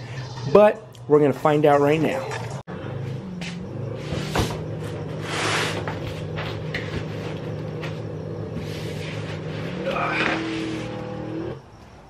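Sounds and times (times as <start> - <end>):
steady low hum: 2.7 - 12.0
welder scraping cardboard: 4.0 - 11.6.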